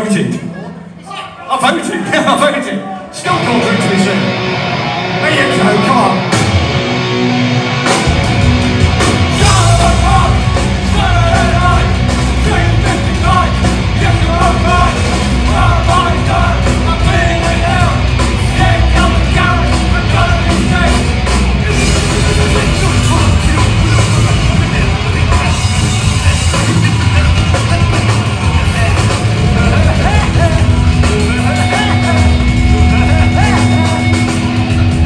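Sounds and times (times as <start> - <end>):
heavy metal band playing: 1.6 - 35.0
singer's vocals: 9.3 - 34.4.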